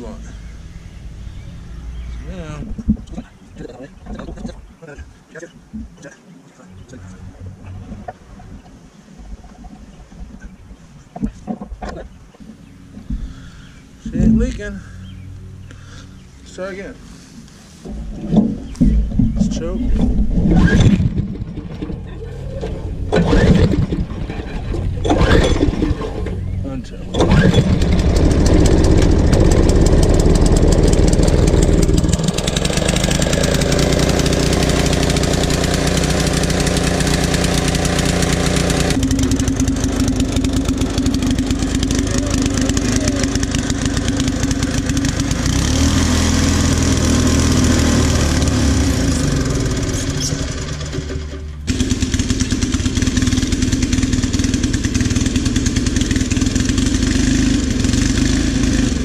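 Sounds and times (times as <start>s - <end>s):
small gas engine running: 20.4s - 59.0s.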